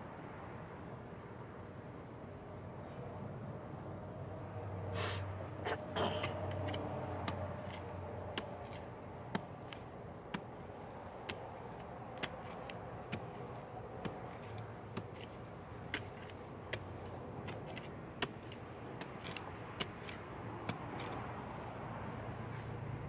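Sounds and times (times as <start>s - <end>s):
trowel scraping in dry soil: 6.0s - 22.8s.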